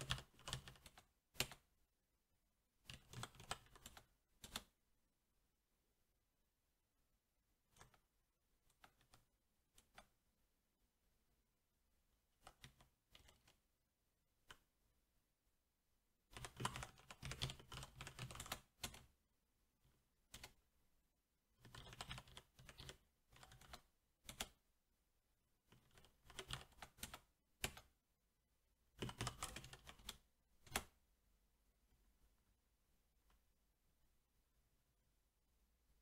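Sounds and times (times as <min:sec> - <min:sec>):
mechanical keyboard typing: 0:00.0 - 0:01.7, 0:02.8 - 0:04.8, 0:12.4 - 0:13.6, 0:16.3 - 0:19.1, 0:20.3 - 0:20.6, 0:21.6 - 0:24.6, 0:25.7 - 0:27.9, 0:29.0 - 0:31.0.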